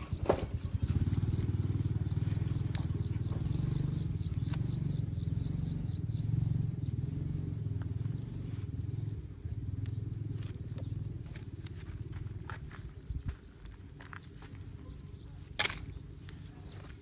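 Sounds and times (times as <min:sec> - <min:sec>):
small engine puttering: 0:00.0 - 0:12.8.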